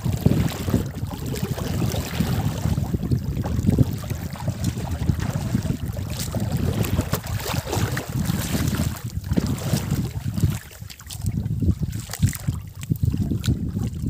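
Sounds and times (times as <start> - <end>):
water splashing from wading: 0.0 - 14.0
wind buffeting microphone: 0.0 - 14.0.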